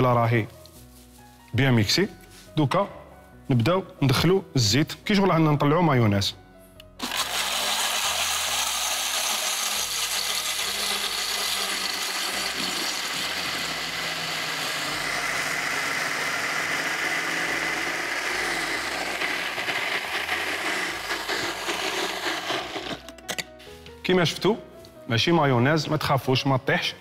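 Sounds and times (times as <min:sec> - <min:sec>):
blender running: 0:07.0 - 0:23.1.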